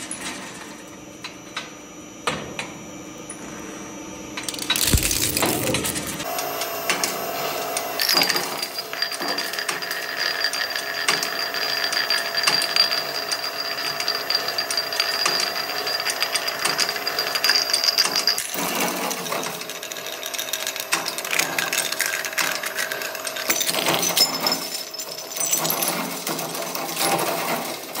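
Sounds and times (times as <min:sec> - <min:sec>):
shredder machine running: 0:04.7 - 0:11.6.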